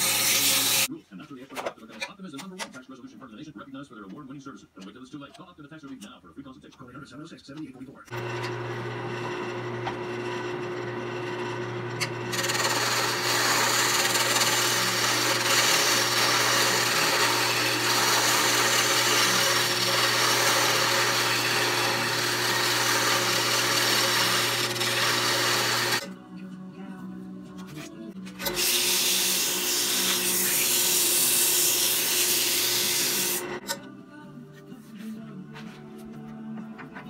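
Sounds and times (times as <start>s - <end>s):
wood lathe motor hum: 8.1s - 26.0s, 28.4s - 33.6s
turning tool scraping wood: 8.2s - 26.0s.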